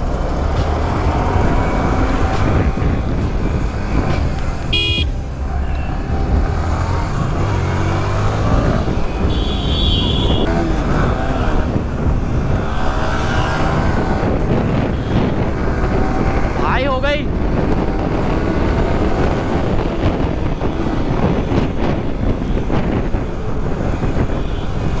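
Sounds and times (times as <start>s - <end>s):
wind rumble on microphone: 0.0s - 25.0s
vehicle horn toot: 4.7s - 5.8s, 9.2s - 10.5s
higher horn tone: 4.7s - 6.0s.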